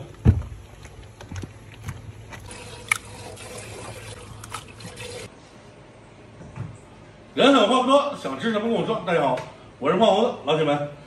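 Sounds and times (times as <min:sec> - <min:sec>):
wet scrubbing of meat: 0:02.2 - 0:05.3
water trickling: 0:02.4 - 0:05.3.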